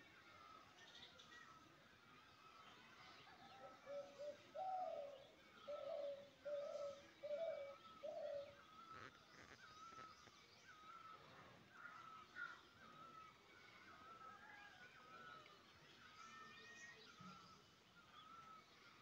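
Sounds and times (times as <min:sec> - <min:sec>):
small birds chirping: 0:02.2 - 0:14.4
dove cooing: 0:03.8 - 0:08.6.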